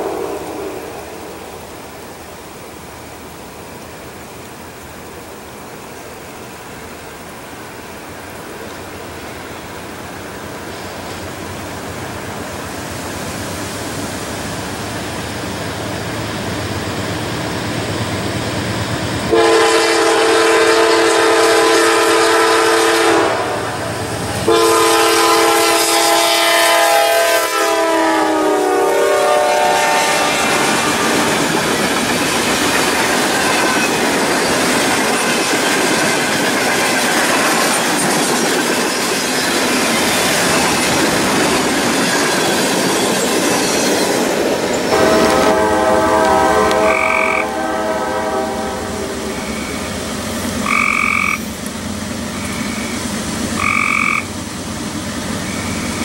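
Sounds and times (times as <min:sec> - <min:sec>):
train wheels clicking over rail joints: 0:00.0 - 0:19.4, 0:29.4 - 0:47.4, 0:49.1 - 0:56.0
locomotive rumble: 0:00.0 - 0:56.0
locomotive air horn blasts: 0:19.3 - 0:31.5, 0:44.9 - 0:49.7, 0:50.6 - 0:51.3, 0:53.6 - 0:54.2.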